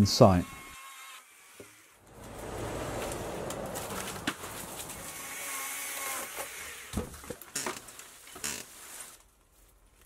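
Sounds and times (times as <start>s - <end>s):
outdoor background hiss: 2.0s - 10.0s.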